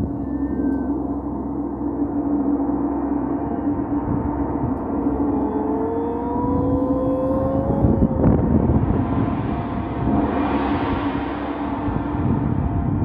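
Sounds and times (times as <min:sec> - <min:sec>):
gong ringing: 0:00.0 - 0:13.0
strong low hum: 0:00.0 - 0:13.0.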